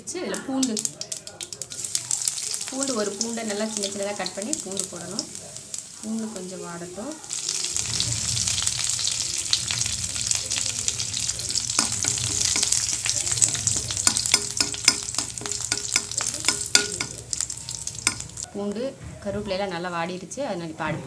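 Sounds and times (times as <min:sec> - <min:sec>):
garlic sizzling in hot oil: 0:00.0 - 0:18.5
spatula stirring in a pan: 0:07.2 - 0:18.5.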